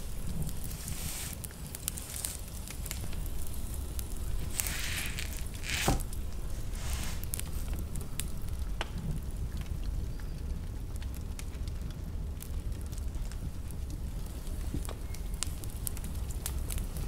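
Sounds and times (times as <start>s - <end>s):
spatula swishing and scraping mousse: 0.7s - 1.4s.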